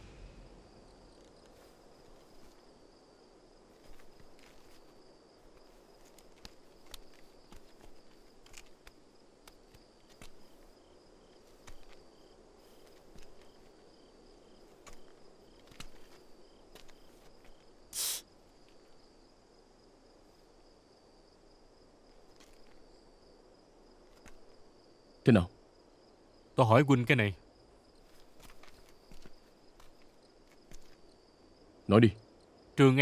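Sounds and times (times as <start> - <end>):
crickets chirping: 0.0 - 33.0
faint clicks and scuffs: 3.7 - 10.7, 14.7 - 18.9, 28.0 - 31.0.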